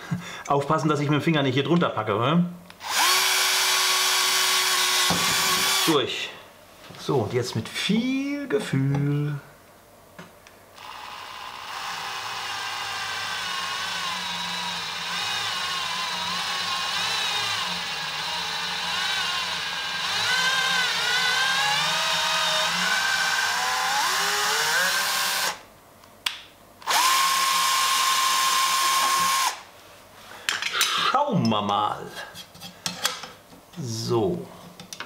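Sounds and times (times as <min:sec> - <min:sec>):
cordless drill boring into metal: 0:02.8 - 0:06.0, 0:10.8 - 0:25.6, 0:26.8 - 0:29.6.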